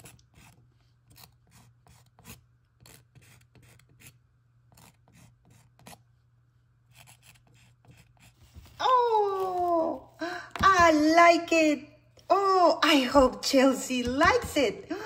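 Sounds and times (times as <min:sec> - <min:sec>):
marker scratching on canvas: 0:00.0 - 0:06.1, 0:06.9 - 0:08.8.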